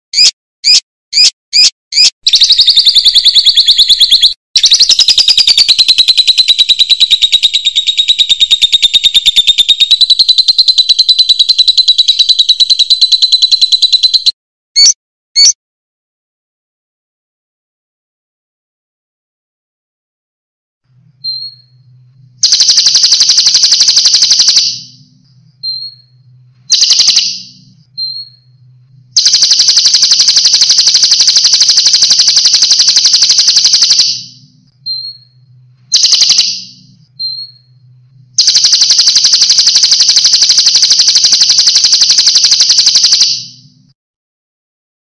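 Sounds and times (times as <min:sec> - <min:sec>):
songbird chirps and trills: 0:00.2 - 0:13.1
faint low hum: 0:20.9 - 0:22.5, 0:24.7 - 0:29.2, 0:34.3 - 0:36.0, 0:36.6 - 0:38.4.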